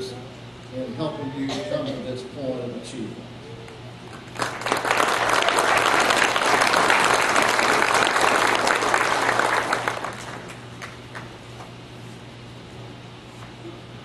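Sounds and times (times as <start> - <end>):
audience applauding: 4.2 - 11.3.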